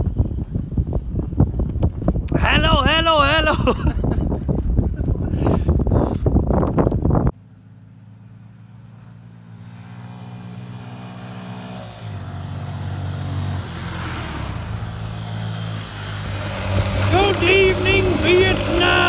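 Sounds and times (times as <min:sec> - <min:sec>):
motorcycle engine revving: 0:07.4 - 0:19.0.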